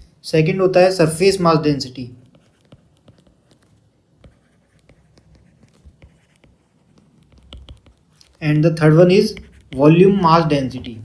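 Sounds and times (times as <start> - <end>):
stylus tapping on tablet: 2.2 - 8.4, 9.0 - 10.1.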